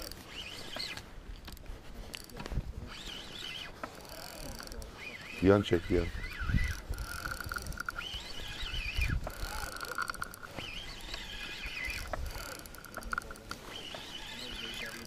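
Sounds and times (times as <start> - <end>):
fishing reel clicking: 0.0 - 15.0
fishing reel gear whine: 0.0 - 15.0.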